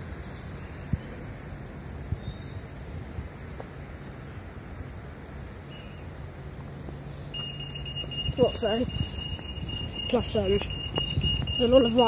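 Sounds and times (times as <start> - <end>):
traffic noise: 0.0 - 12.0
vehicles idling: 4.4 - 12.0.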